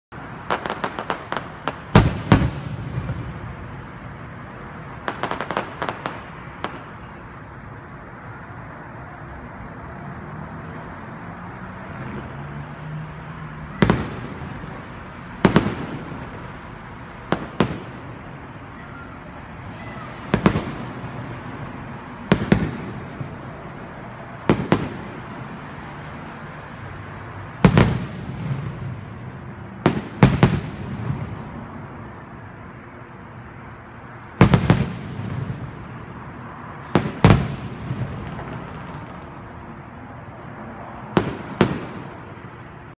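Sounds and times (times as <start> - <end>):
fireworks bursting with echo: 0.2 - 7.5, 13.6 - 25.7, 27.5 - 32.3, 34.4 - 39.8, 41.1 - 42.6.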